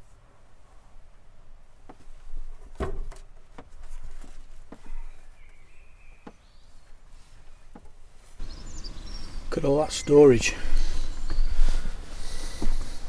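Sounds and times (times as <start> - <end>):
knocks and clunks in van: 2.6 - 3.8, 12.5 - 13.0.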